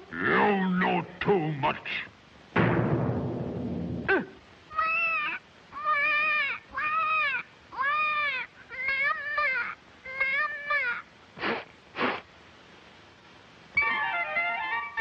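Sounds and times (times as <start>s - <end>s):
cartoon voice wailing sobs: 4.1s - 11.1s.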